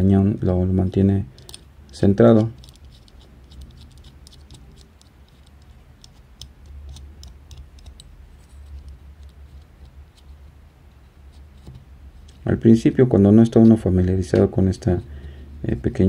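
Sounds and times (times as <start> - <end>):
low steady hum: 0.0 - 16.0
small metal clicks and scrapes: 1.4 - 10.4.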